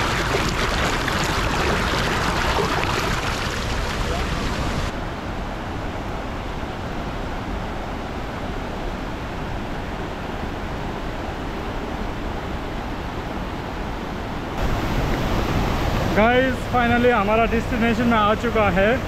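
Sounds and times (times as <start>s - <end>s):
flowing water rushing: 0.0s - 5.0s, 14.6s - 19.0s.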